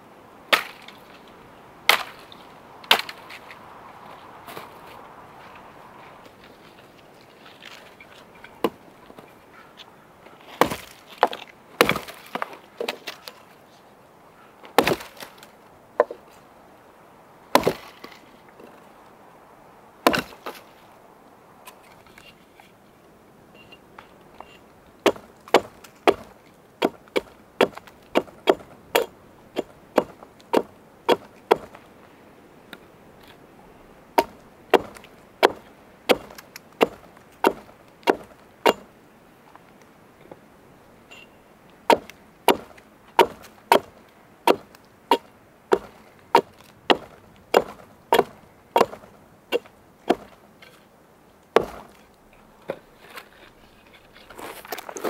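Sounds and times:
axe chopping wood: 0:00.5 - 0:01.0, 0:01.9 - 0:02.2, 0:02.9 - 0:03.3, 0:10.6 - 0:13.3, 0:14.8 - 0:15.4, 0:17.5 - 0:18.1, 0:20.0 - 0:20.6, 0:25.0 - 0:31.8, 0:34.2 - 0:38.9, 0:41.9 - 0:50.4, 0:51.6 - 0:52.0.

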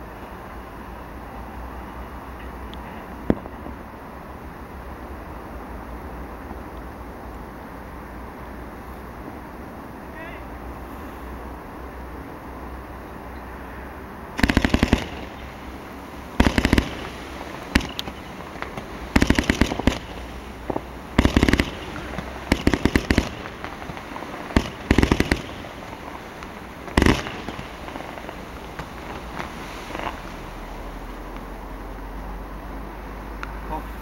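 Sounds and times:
firework cake rapid pops: 0:03.2 - 0:03.8, 0:14.4 - 0:31.4.

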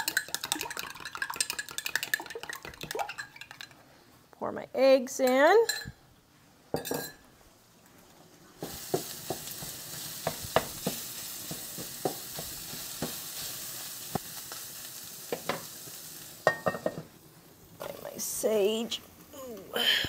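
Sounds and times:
food sizzling in a frying pan: 0:08.3 - 0:20.0.

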